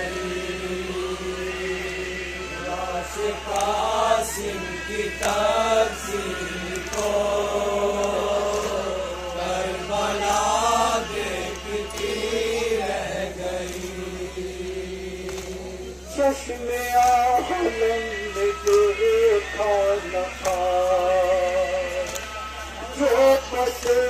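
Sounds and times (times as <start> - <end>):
man chanting a lament: 16.0 - 22.1, 22.8 - 24.0.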